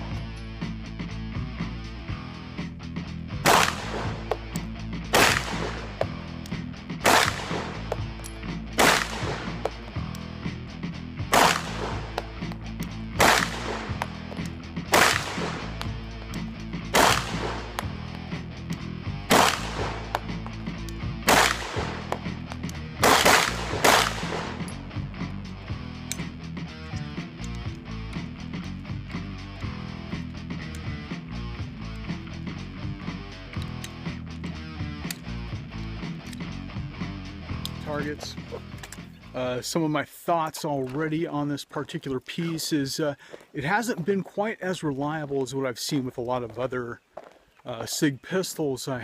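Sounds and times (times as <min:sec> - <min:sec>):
background music: 0:00.0 - 0:41.6
pistol shots: 0:03.4 - 0:06.2, 0:07.0 - 0:09.8, 0:11.3 - 0:12.5, 0:13.1 - 0:16.0, 0:16.9 - 0:18.2, 0:19.2 - 0:20.4, 0:21.2 - 0:22.4, 0:23.0 - 0:24.8.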